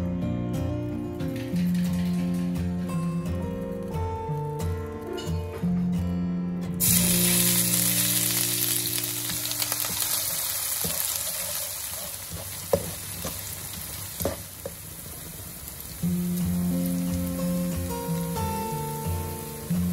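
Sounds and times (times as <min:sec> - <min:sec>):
onions sizzling in hot oil: 0:06.8 - 0:19.9.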